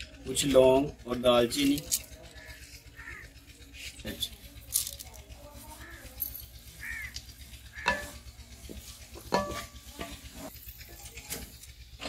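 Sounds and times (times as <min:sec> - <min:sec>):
spatula knocking and scraping metal: 0:07.7 - 0:12.0.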